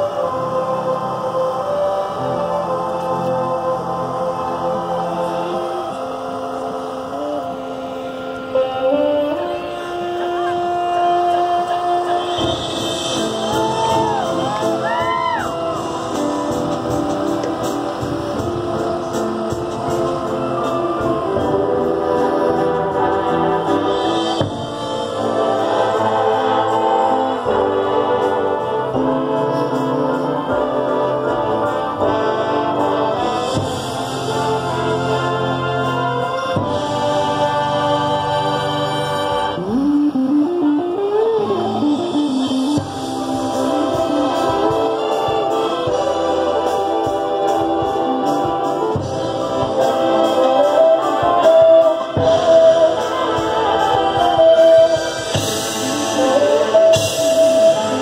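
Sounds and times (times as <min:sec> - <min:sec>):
marching band sustained chords: 0:00.0 - 0:58.0
drum and cymbal hits: 0:12.3 - 0:28.4, 0:33.2 - 0:39.8, 0:42.2 - 0:58.0.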